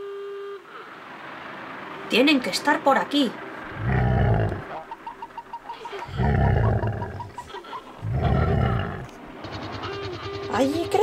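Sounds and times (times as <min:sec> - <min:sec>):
big cat roaring: 0:03.7 - 0:04.7, 0:06.0 - 0:07.3, 0:08.0 - 0:09.2.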